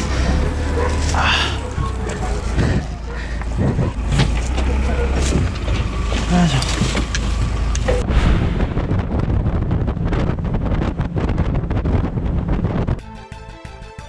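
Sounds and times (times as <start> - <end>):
wind buffeting microphone: 0.0 - 6.1, 7.3 - 13.0
low rumble: 7.6 - 13.0.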